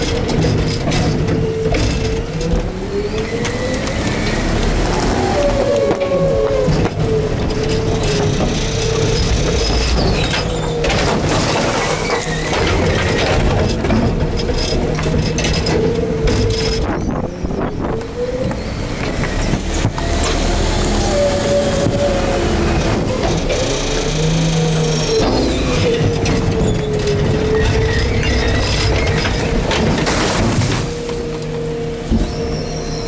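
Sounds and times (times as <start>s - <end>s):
hydraulic packer rumble: 0.0s - 33.0s
hydraulic pump whine: 0.0s - 33.0s
wind on microphone: 16.6s - 18.6s.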